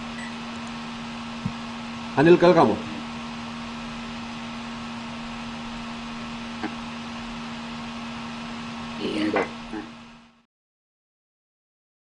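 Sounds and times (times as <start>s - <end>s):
phone line hiss: 0.0s - 0.6s
electrical hum: 0.0s - 10.4s.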